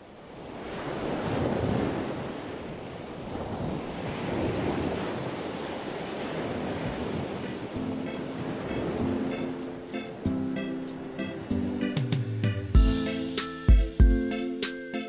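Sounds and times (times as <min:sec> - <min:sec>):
small waves washing: 0:00.0 - 0:11.7
wind buffeting microphone: 0:00.4 - 0:09.5.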